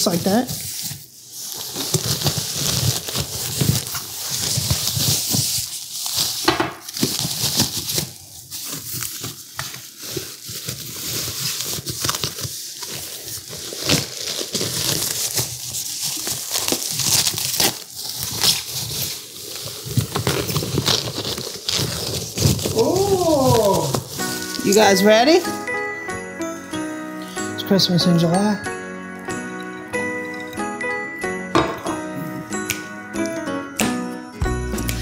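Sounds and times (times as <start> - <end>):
packaging crinkling and tearing: 0.0 - 25.8.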